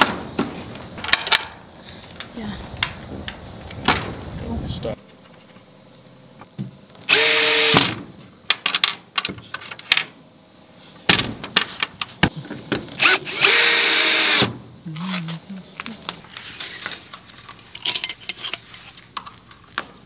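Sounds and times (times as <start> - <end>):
cordless drill driving a screw: 7.1 - 7.8, 13.0 - 14.4.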